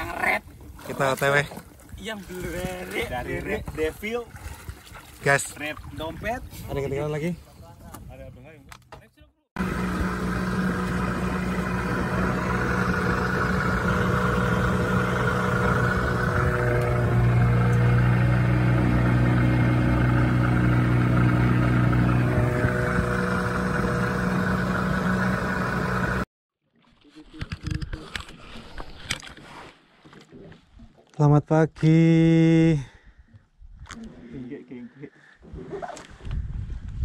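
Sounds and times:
water noise: 0.0s - 7.4s, 9.6s - 27.2s
outboard motor running: 9.6s - 26.3s.

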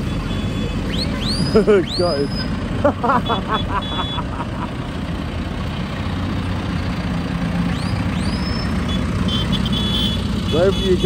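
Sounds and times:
tractor engines rumbling: 0.0s - 11.0s
rising whistle-like tones: 7.7s - 9.0s.

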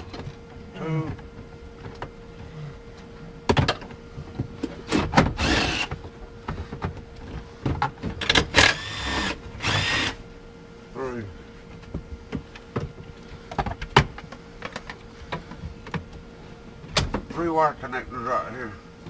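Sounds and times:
cordless drill whirring: 4.9s - 5.9s, 8.5s - 10.2s.

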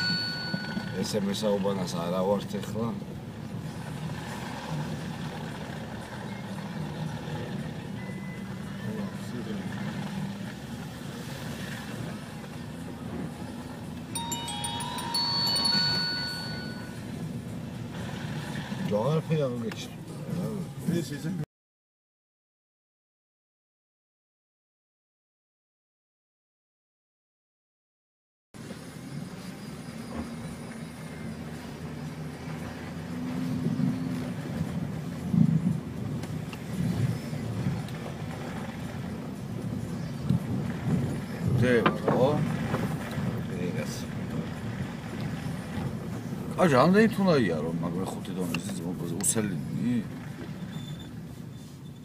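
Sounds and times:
electronic chime melody: 0.0s - 1.2s, 14.2s - 17.2s
car interior rumble: 0.0s - 21.4s, 28.6s - 52.0s.

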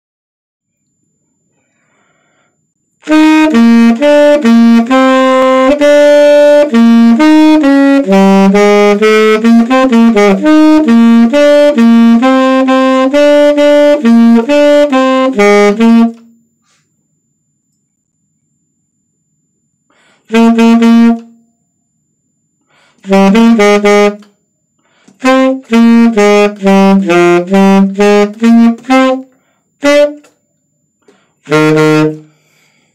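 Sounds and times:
tenor saxophone playing: 3.0s - 16.8s, 20.2s - 21.5s, 22.9s - 24.4s, 25.0s - 30.4s, 31.1s - 32.5s.

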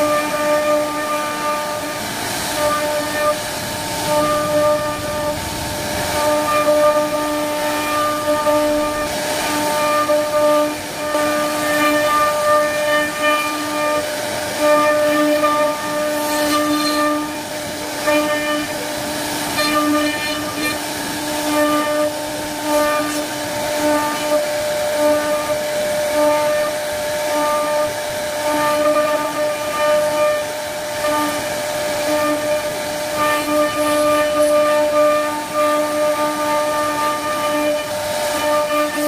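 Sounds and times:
router spindle whining: 0.0s - 24.4s.

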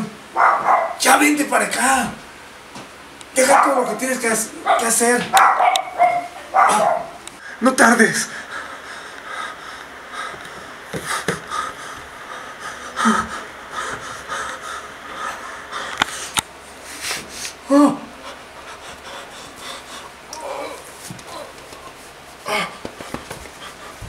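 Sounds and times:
heavy breathing with sniffs: 8.3s - 24.0s.

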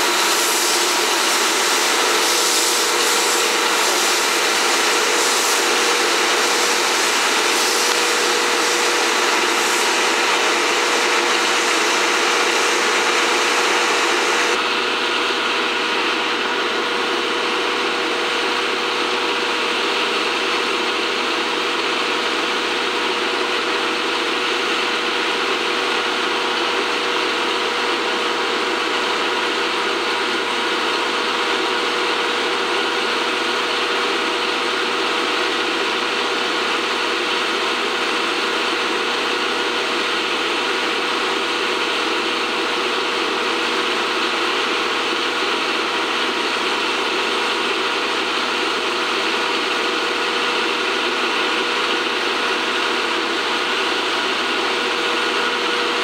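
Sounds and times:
steam locomotive hissing: 0.0s - 14.6s
steady hum: 0.0s - 14.8s.

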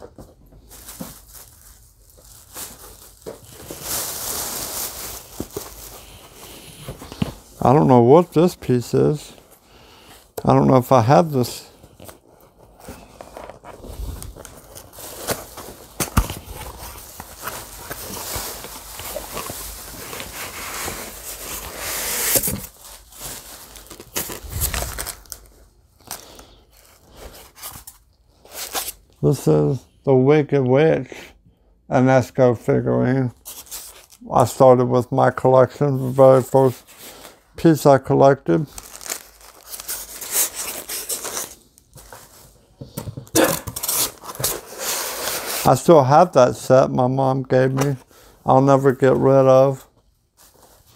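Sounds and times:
cardboard and paper rustling: 0.0s - 8.5s, 11.8s - 29.0s, 38.7s - 45.8s
cardboard boxes being opened: 12.8s - 25.5s.

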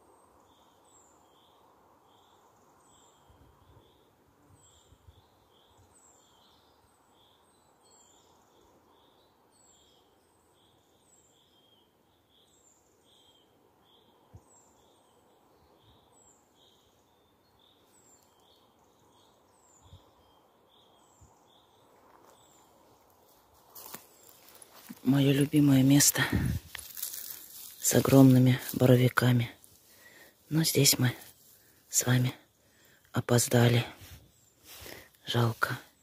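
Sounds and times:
soft hiss: 17.6s - 36.0s.

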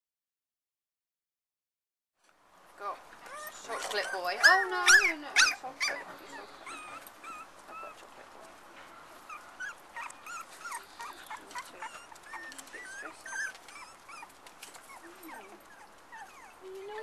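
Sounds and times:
puppies squeaking and whimpering: 3.2s - 8.4s, 9.1s - 17.0s.

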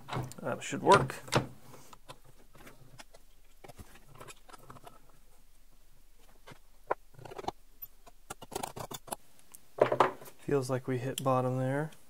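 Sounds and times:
soft clicks of steel parts: 11.0s - 12.0s.

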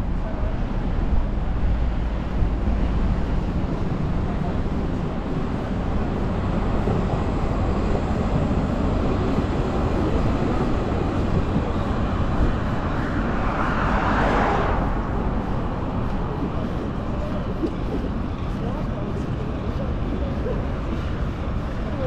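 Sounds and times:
city traffic rumbling: 0.0s - 22.0s
vehicle passing close by: 9.4s - 17.0s.

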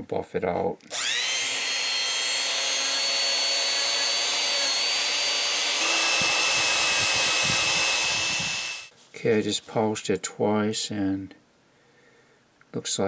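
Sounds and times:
rotary tool high whine: 0.9s - 8.9s.

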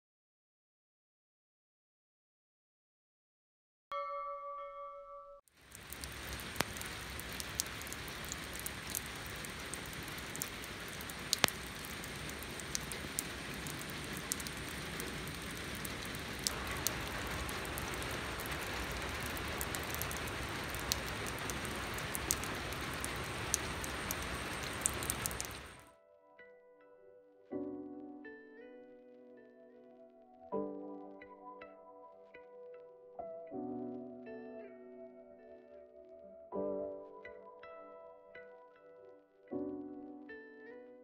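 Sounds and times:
drop splashes: 5.6s - 25.8s
rain falling into water: 5.6s - 25.8s.

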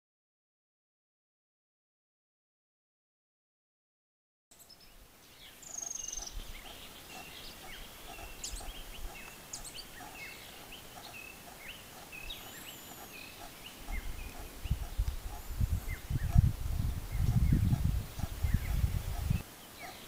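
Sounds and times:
birds chirping and whistling: 4.6s - 20.0s
high bird trill: 4.6s - 20.0s.

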